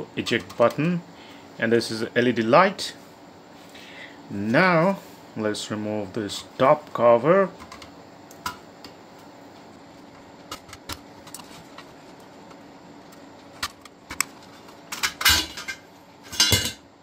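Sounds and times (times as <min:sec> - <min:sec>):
metal cover scraping and rattling: 0:14.9 - 0:16.8.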